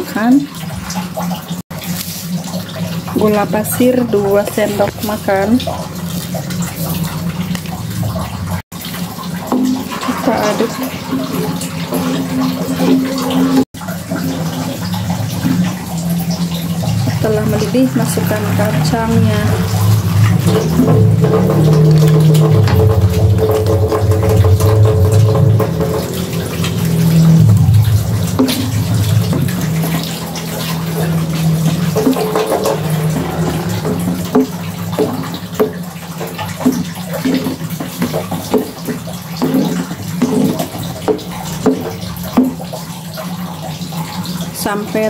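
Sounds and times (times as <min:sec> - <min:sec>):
bubbling liquid in wok: 0:00.0 - 0:45.0
spatula stirring strokes: 0:00.7 - 0:08.2, 0:08.9 - 0:42.2
low hum: 0:02.8 - 0:35.4.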